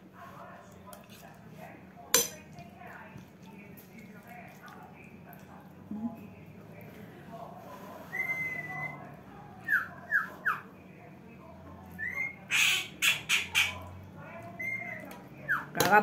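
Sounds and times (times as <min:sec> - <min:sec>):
bird whistling and chirping: 0:08.1 - 0:09.0, 0:14.6 - 0:15.7
bird harsh squawks: 0:12.0 - 0:13.8.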